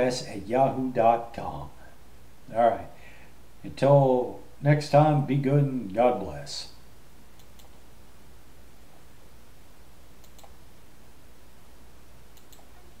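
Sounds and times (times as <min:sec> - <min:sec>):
room hum and microphone hiss: 0:00.0 - 0:13.0
faint clicks: 0:10.2 - 0:10.6, 0:12.3 - 0:12.8.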